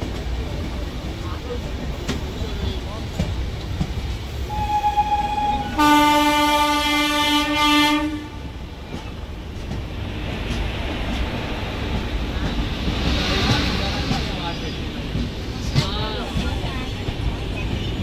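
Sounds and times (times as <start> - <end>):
train running on rails: 0.0 - 18.0
train horn blast: 4.5 - 8.5.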